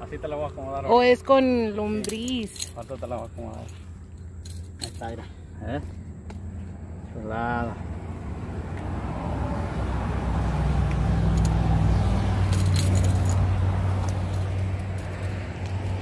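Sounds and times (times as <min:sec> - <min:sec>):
motor vehicle passing: 0:03.6 - 0:16.0
light clinks: 0:12.4 - 0:15.9.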